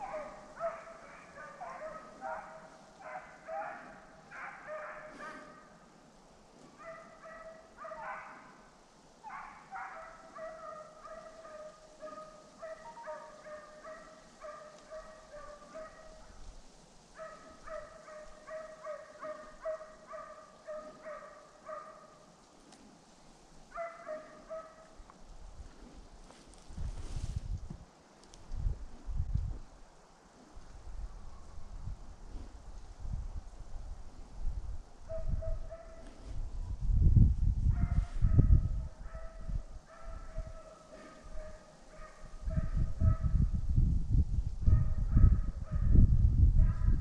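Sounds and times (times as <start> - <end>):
hounds baying: 0.0 - 5.8, 6.6 - 8.6, 9.2 - 16.4, 17.2 - 22.3, 23.7 - 25.0, 35.1 - 36.2, 37.8 - 43.3.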